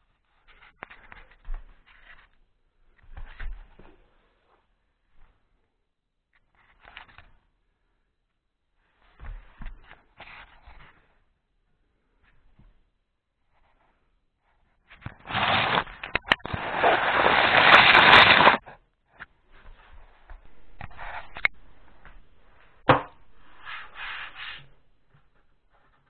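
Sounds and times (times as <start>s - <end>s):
camera rubbing against cloth: 15.1s - 18.7s, 20.6s - 21.6s, 23.3s - 25.3s.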